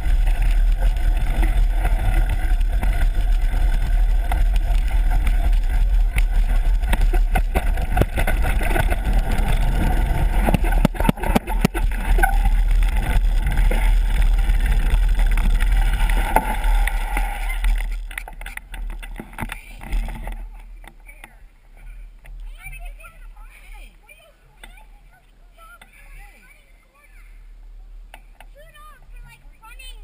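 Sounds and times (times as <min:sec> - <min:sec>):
bicycle knocking and rattling: 0:00.0 - 0:22.9
wind rumbling on microphone: 0:00.0 - 0:25.5.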